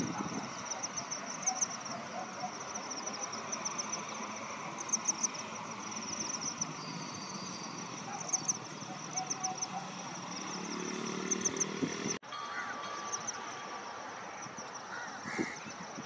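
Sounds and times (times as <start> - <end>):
rapid high-pitched chirping: 0.0 - 12.2.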